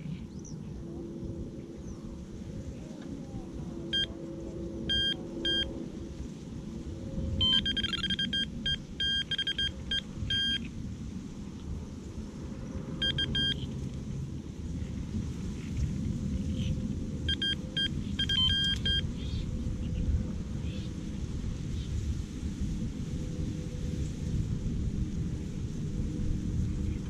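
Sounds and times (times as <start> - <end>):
wind rumble on microphone: 0.0 - 27.0
bite alarm beeping: 4.9 - 5.7, 7.4 - 10.6, 13.0 - 13.6, 17.3 - 19.0.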